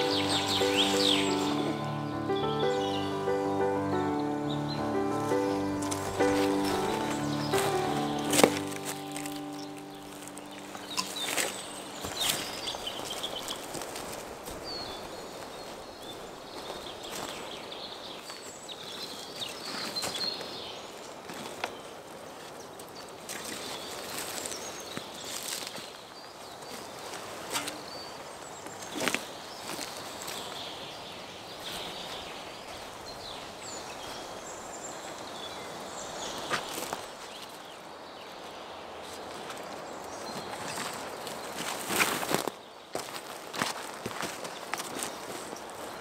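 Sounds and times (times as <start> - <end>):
birds chirping: 0.0 - 13.7
outdoor background hiss: 0.0 - 14.5
songbirds chirping: 0.0 - 43.3
footsteps on dry twigs: 5.2 - 15.5, 39.0 - 46.0.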